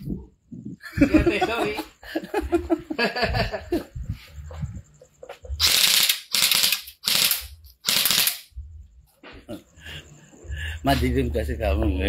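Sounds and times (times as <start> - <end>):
airsoft rifle bursts: 5.6 - 8.5.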